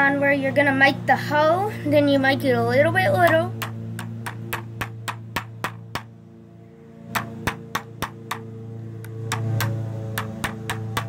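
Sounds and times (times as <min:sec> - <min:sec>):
small hammer tapping screw: 0:09.3 - 0:11.0.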